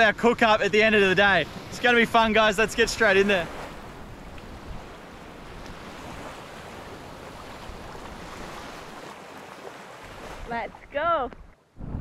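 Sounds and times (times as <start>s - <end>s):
small waves washing: 0.5s - 11.8s
wind on microphone: 3.5s - 9.0s, 10.1s - 12.0s.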